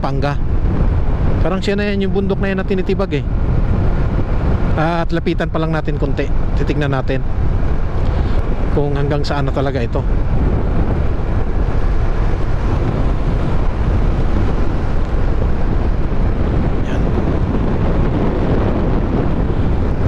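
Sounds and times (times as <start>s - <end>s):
road noise: 0.0s - 20.0s
wind rushing over microphone: 0.0s - 20.0s.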